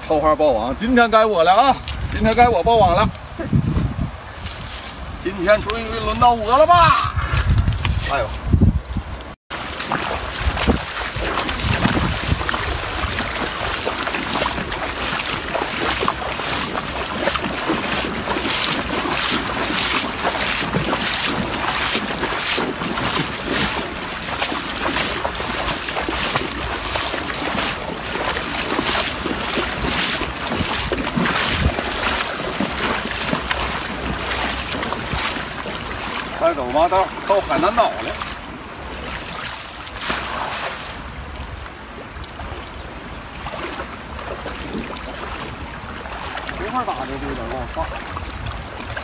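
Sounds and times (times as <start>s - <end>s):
wind buffeting microphone: 1.0s - 38.2s
wader splashing through water: 9.5s - 49.0s
river water rushing: 9.6s - 49.0s.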